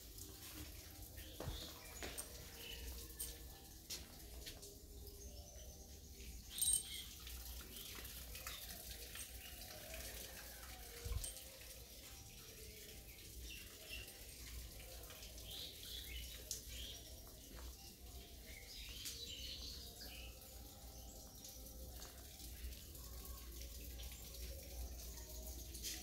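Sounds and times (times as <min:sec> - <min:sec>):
birds chirping: 0:01.1 - 0:09.7.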